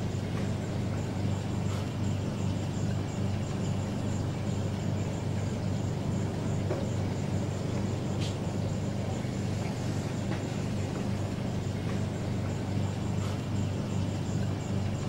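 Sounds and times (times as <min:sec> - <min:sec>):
aquarium pump humming: 0:00.0 - 0:15.0.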